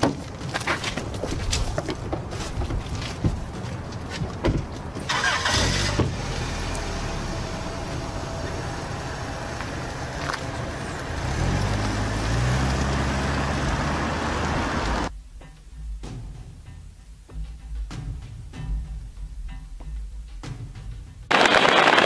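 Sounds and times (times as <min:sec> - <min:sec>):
car engine cranking and running: 0:05.0 - 0:15.1.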